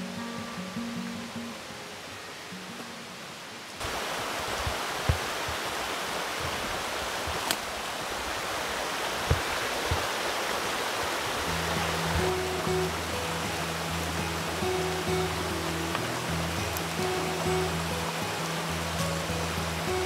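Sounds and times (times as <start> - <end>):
river water rushing: 0.0 - 20.0.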